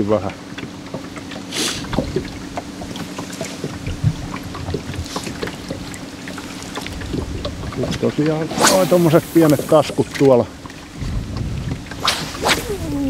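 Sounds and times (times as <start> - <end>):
brief hiss: 8.5 - 9.9.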